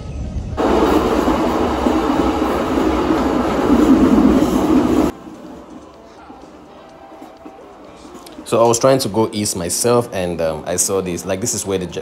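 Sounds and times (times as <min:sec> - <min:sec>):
train wheels on the track: 0:00.0 - 0:09.1.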